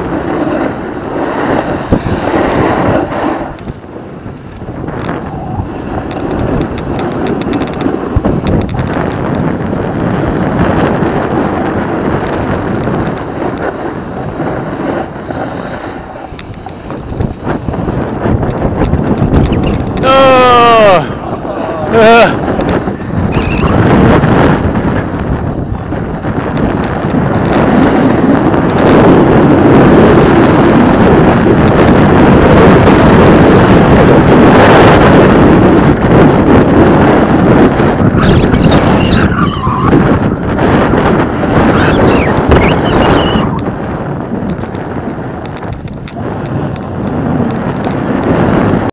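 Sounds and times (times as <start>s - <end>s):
snowboard hissing on snow: 0.0s - 3.6s, 13.2s - 17.8s
snowboard scraping over snow: 0.0s - 48.9s
wind buffeting microphone: 0.0s - 48.9s.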